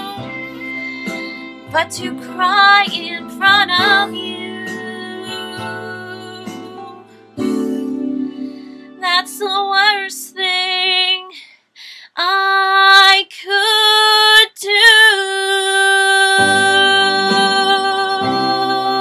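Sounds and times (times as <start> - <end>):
instrumental accompaniment: 0.0 - 9.6
woman singing ballad: 0.0 - 11.4, 12.1 - 19.0.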